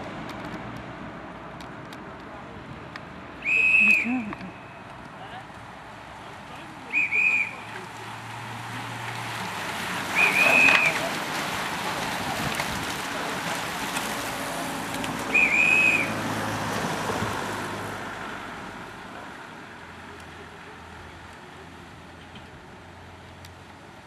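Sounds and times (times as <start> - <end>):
cyclists riding past: 0.0 - 24.0
whistle blasts: 3.4 - 4.9, 6.9 - 7.8, 10.2 - 11.0, 15.3 - 16.2.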